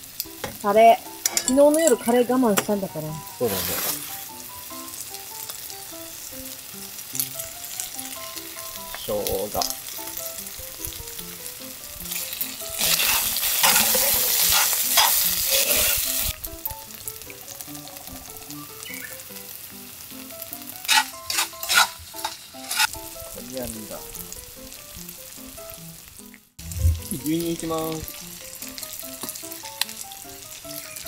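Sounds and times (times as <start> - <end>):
food sizzling in a skillet: 0.0 - 31.0
metal tongs clinking on pan: 1.1 - 2.7, 12.1 - 16.0, 20.8 - 22.9.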